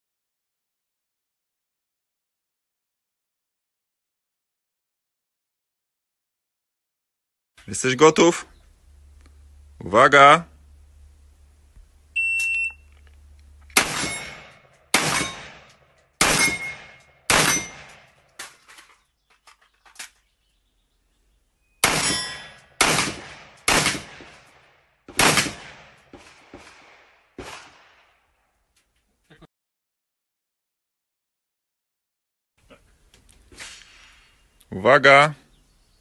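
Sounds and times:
electronic start beep: 12.2s - 12.9s
rifle shots: 13.7s - 18.6s, 21.8s - 28.2s.

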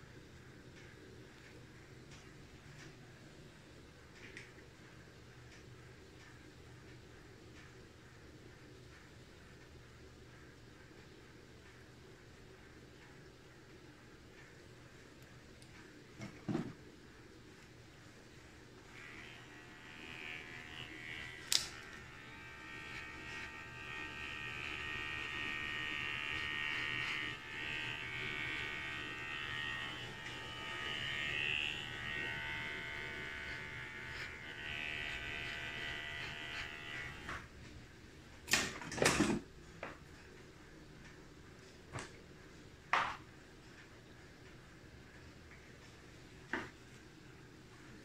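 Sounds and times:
electric hair clippers buzzing: 18.8s - 37.5s.

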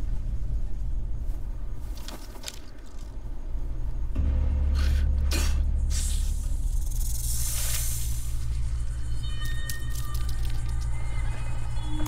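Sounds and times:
low rumbling drone score: 3.2s - 12.0s.

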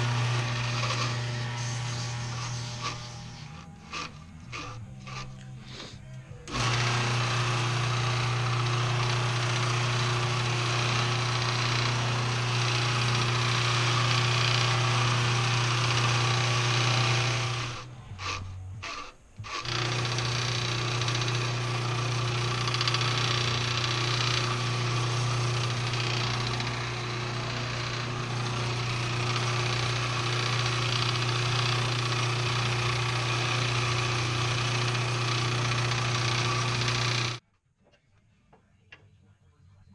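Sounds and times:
wood lathe motor hum and hiss: 0.0s - 37.4s.

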